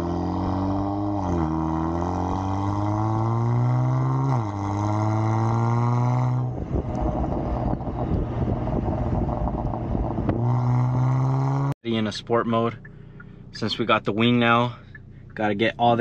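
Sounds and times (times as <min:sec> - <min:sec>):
car engine accelerating: 0:00.0 - 0:11.8
uneven engine rumble: 0:00.0 - 0:16.0.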